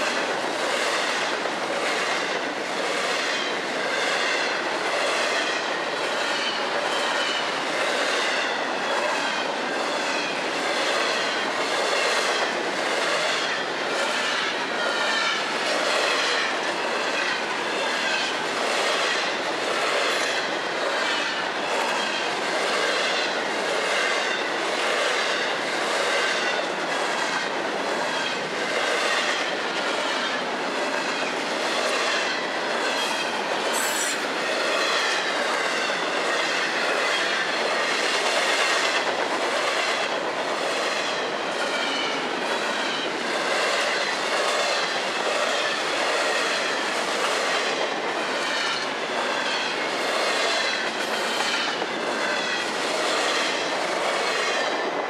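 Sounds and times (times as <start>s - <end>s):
train rumble: 0.0s - 55.0s
train wheels clacking over rail joints: 0.0s - 55.0s
high wheel squeal: 33.7s - 34.3s.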